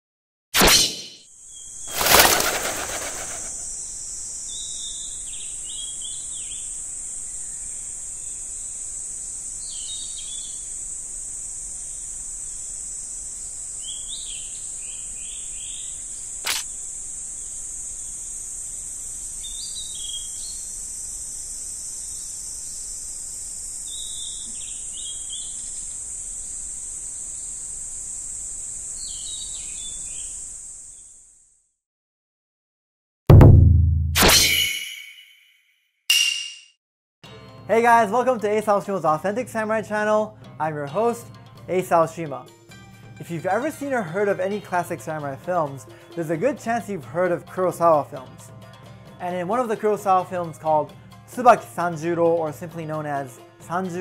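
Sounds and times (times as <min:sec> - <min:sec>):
sharp click: 0:00.6 - 0:01.2, 0:16.4 - 0:16.7
short bird chirps: 0:00.6 - 0:01.2
high-pitched insect drone: 0:01.9 - 0:05.1, 0:15.7 - 0:31.0.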